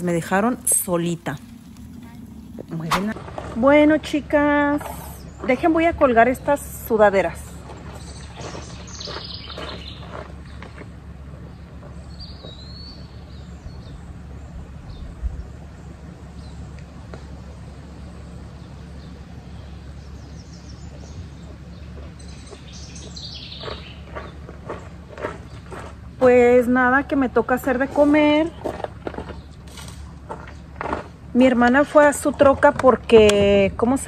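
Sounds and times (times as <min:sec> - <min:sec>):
steady low rumble: 0:00.0 - 0:34.0
bird chirp: 0:07.6 - 0:26.4.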